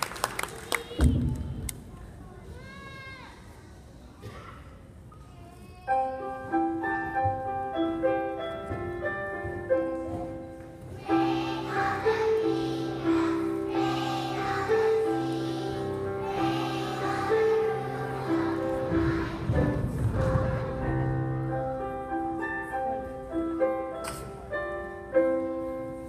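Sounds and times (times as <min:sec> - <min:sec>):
children's choir singing: 0:10.7 - 0:21.9.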